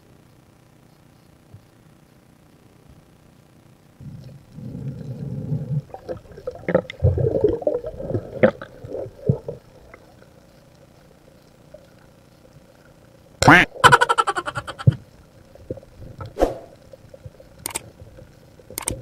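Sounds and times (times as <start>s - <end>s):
underwater gurgling and bubbling: 4.0s - 13.2s, 14.6s - 19.0s.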